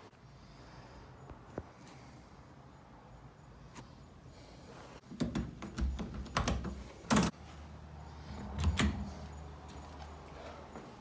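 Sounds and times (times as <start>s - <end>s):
doorknob clicks and knocks: 5.1s - 7.3s.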